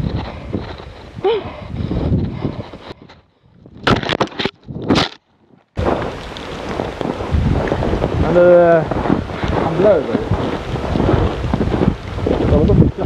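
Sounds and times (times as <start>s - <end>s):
rumbling: 0.0s - 13.0s
wind noise on microphone: 0.0s - 13.0s
camera rustling through brush: 2.0s - 8.2s.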